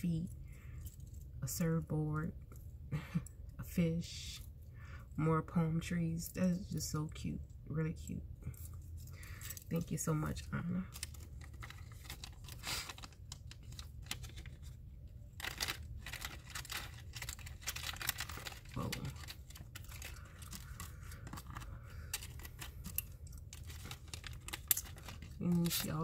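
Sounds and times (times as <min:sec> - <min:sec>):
cellophane bag crinkling: 0:08.6 - 0:26.0
small wooden pieces clicking: 0:15.4 - 0:25.8.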